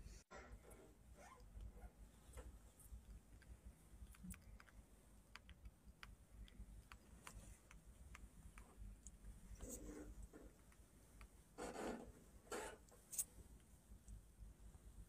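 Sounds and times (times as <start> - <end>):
monkey gnawing and chewing: 1.6 - 11.6.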